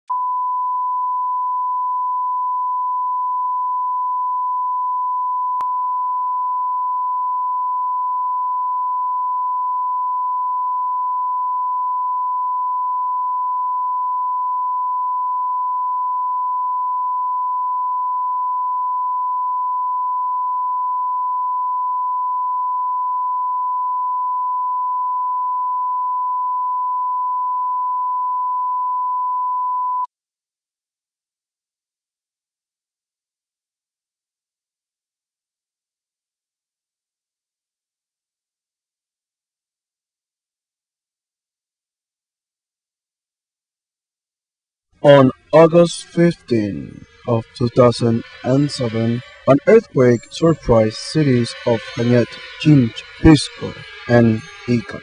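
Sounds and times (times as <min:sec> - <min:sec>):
pure reference tone: 0:00.1 - 0:30.1, 0:45.0 - 0:55.0.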